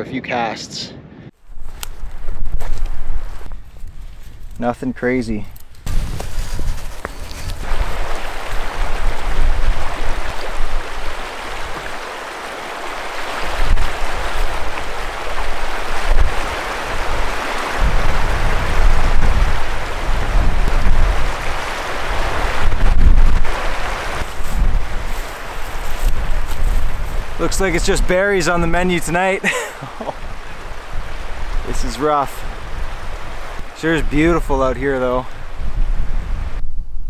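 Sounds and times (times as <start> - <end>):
wind buffeting microphone: 1.0 - 37.0
river rapids rushing: 7.6 - 20.4, 21.1 - 22.8.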